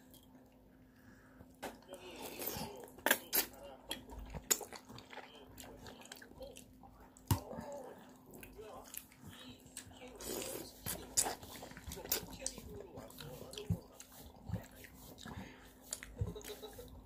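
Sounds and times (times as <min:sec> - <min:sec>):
child slurping and chewing: 0:09.7 - 0:17.0.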